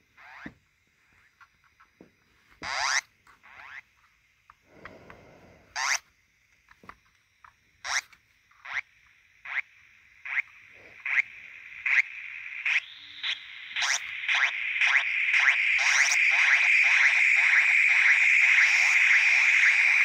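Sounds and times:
synthesizer sweeping chirps: 11.9 - 20.0.

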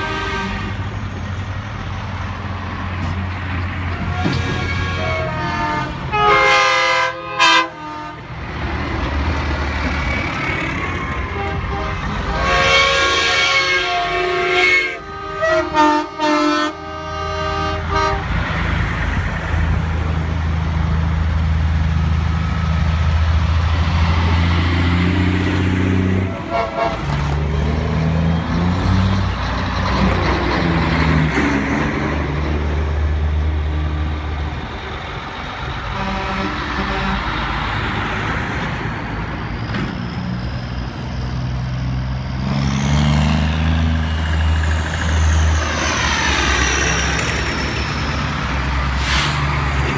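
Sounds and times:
air horn blast: 0.0 - 0.8, 4.1 - 8.3, 11.2 - 18.3, 26.3 - 27.2, 35.9 - 37.4
diesel truck engines droning: 0.0 - 49.9.

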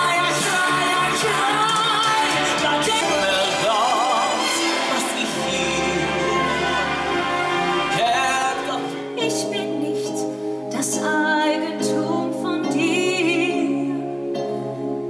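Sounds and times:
woman singing with vibrato: 0.0 - 4.3, 8.0 - 14.2
instrumental accompaniment: 0.0 - 15.0.

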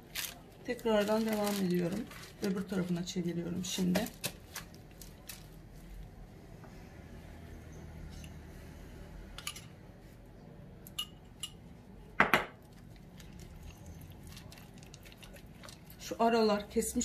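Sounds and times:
metal spoon clinking on ceramic bowl: 10.9 - 11.6.

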